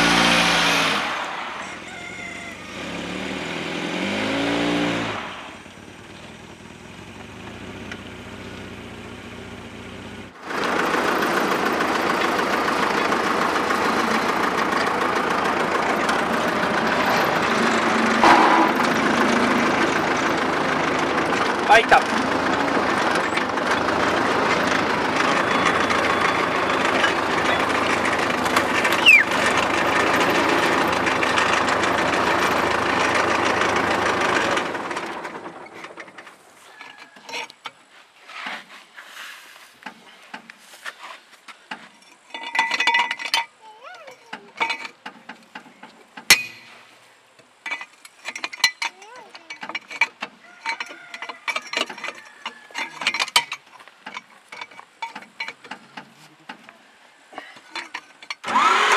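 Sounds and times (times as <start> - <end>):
car engine idling: 0.0 - 36.5
wrench clinking on wheel nuts: 41.7 - 46.8, 47.4 - 56.7, 57.4 - 58.5.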